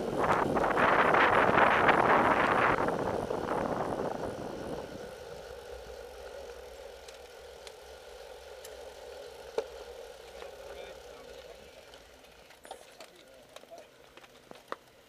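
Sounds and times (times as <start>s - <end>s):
wind rushing over microphone: 0.0s - 5.1s
steady hum: 0.0s - 13.0s.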